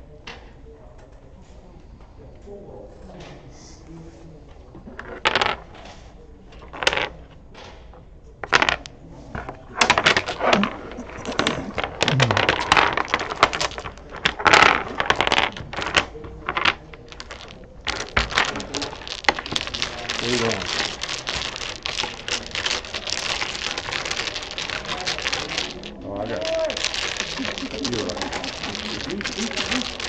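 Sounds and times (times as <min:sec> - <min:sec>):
dominoes clattering shuffled: 0:04.8 - 0:05.9, 0:06.5 - 0:07.1, 0:08.4 - 0:30.0
domino clacks on wood: 0:04.9 - 0:05.8, 0:06.5 - 0:07.8, 0:08.4 - 0:30.0.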